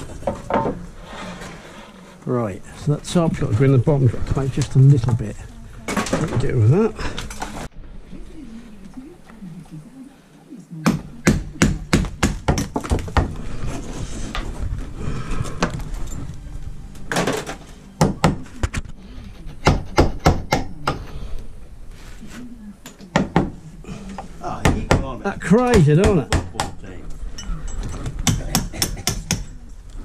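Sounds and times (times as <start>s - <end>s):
hammer striking nails into wood: 10.9s - 13.3s.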